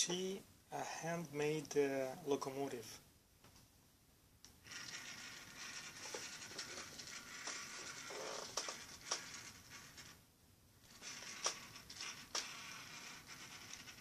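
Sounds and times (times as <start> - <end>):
model train motor whirring: 4.6 - 10.0, 10.9 - 14.0.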